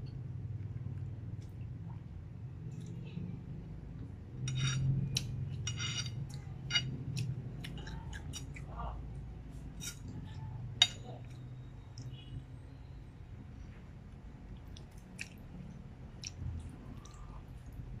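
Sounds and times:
fork scraping and clinking on plate: 0:04.4 - 0:07.0, 0:09.8 - 0:10.1.

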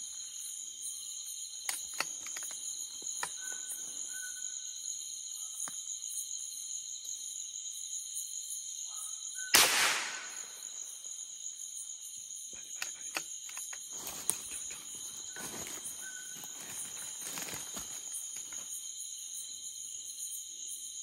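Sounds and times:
insect chorus drone: 0:00.0 - 0:21.0
sharp snap: 0:09.6 - 0:10.4.

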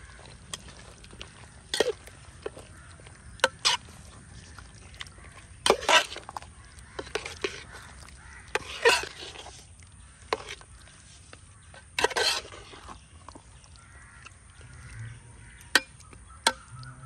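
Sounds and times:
spoon scraping pot: 0:00.4 - 0:13.5.

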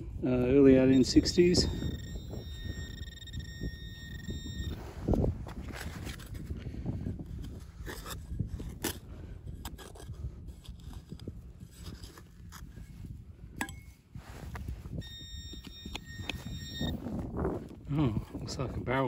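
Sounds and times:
high electronic tone: 0:00.8 - 0:04.8, 0:15.0 - 0:17.1.

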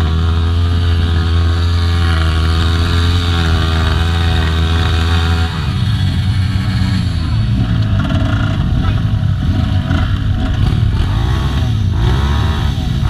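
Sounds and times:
dirt bike engines idling: 0:00.0 - 0:13.0.

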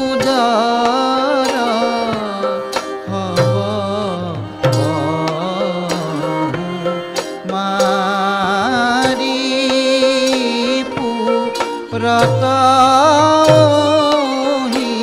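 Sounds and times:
person singing slow melody: 0:00.0 - 0:15.0
drum strokes: 0:01.5 - 0:15.0
held low drone notes: 0:03.1 - 0:07.0.

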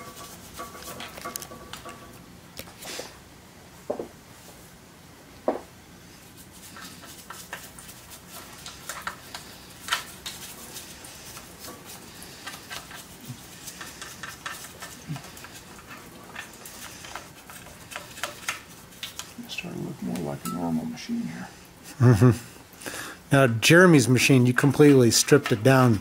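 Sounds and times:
brush clicking on metal parts: 0:06.4 - 0:20.4, 0:24.3 - 0:26.0.

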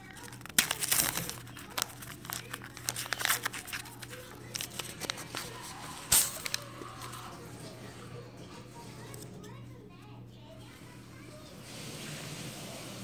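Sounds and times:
plastic and foil packaging crinkling: 0:00.0 - 0:08.0.

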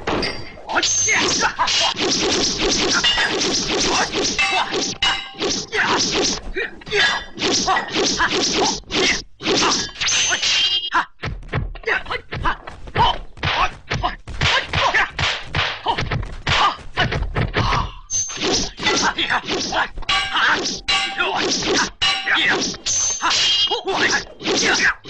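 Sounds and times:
short metallic rings: 0:04.3 - 0:05.7, 0:20.1 - 0:23.7
punch and strike whacks: 0:13.4 - 0:17.2.

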